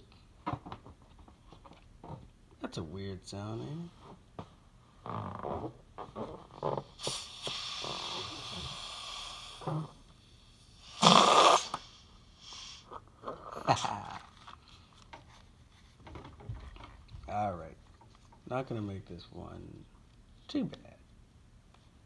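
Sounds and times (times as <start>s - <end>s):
person blowing up balloon: 5.0s - 14.2s.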